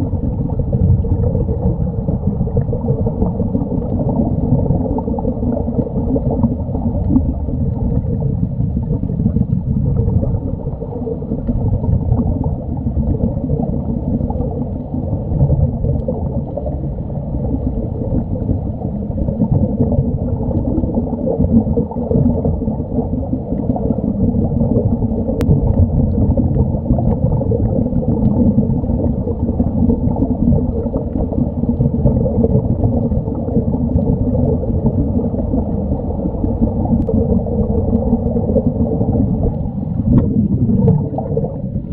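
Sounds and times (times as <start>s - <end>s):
muffled underwater rushing water: 0.0s - 41.9s.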